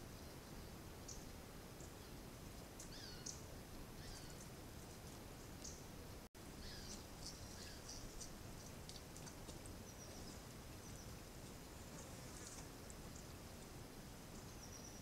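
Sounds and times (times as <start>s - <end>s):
steady background hiss: 0.0s - 15.0s
bird chirps and gliding calls: 2.8s - 5.9s, 6.6s - 8.8s, 9.8s - 13.3s, 14.3s - 15.0s.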